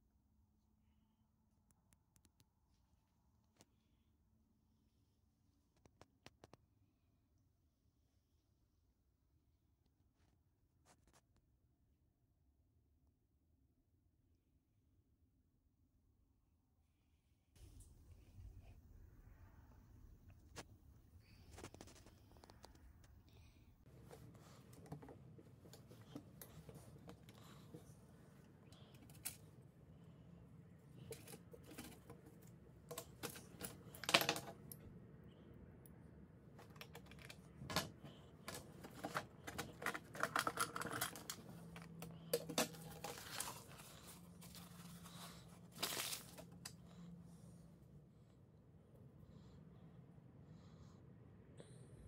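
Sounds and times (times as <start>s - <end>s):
small metal parts clicking and rattling: 31.0s - 34.8s, 36.6s - 43.8s.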